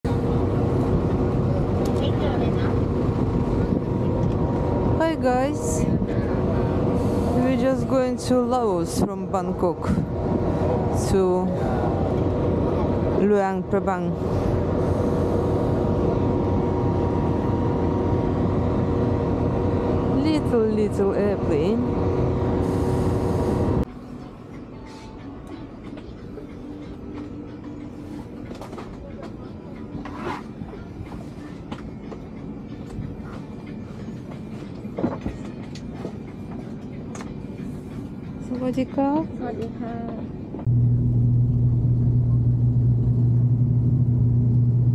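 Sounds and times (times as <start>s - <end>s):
aircraft turbine rumble: 0.1s - 23.9s, 39.2s - 44.9s
aircraft cabin hum: 40.6s - 44.9s
high whine: 40.6s - 44.9s.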